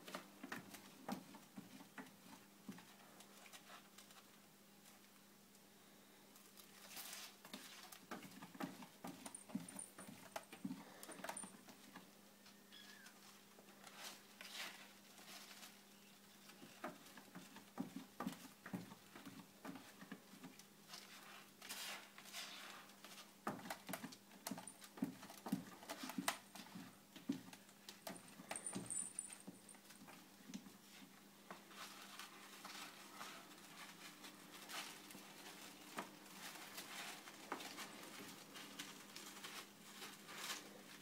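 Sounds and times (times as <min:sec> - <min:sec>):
paws scratching and tapping: 0:06.9 - 0:12.0.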